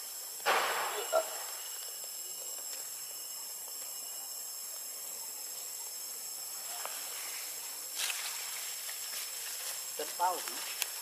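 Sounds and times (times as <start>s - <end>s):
hiss: 0.0s - 2.0s
high-pitched insect drone: 0.0s - 11.0s.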